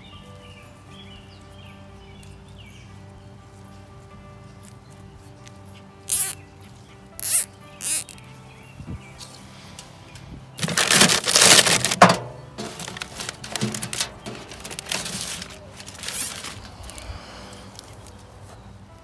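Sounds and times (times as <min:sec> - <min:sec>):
plastic netting and leaves rustling: 0:09.2 - 0:19.0.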